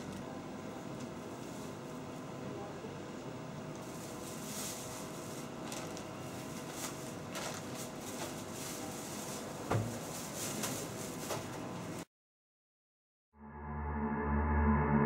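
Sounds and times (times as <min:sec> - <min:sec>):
steady background hum: 0:00.0 - 0:12.0
plastic bag crinkling: 0:03.8 - 0:11.4
thump: 0:09.7 - 0:09.9.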